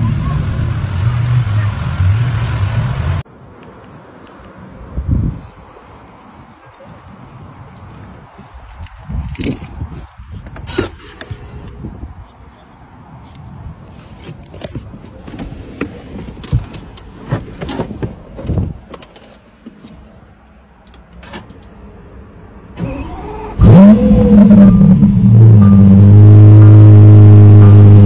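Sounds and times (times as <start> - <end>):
sports car engine revving: 23.0 - 28.0.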